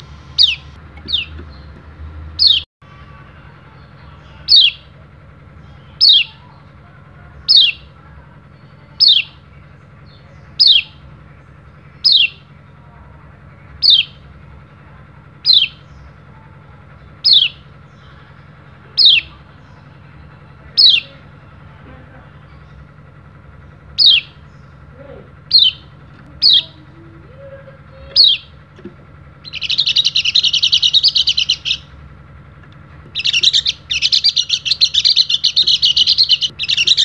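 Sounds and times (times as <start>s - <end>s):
bird chirping sharp calls: 0.0s - 1.8s, 2.4s - 2.7s, 4.4s - 4.8s, 5.6s - 6.4s, 7.4s - 7.9s, 9.0s - 9.4s, 10.1s - 11.1s, 11.9s - 12.5s, 13.8s - 14.2s, 15.4s - 16.2s, 17.1s - 18.2s, 18.9s - 19.8s, 20.8s - 21.2s, 23.7s - 26.8s, 28.0s - 28.7s, 29.4s - 32.0s, 33.1s - 37.0s.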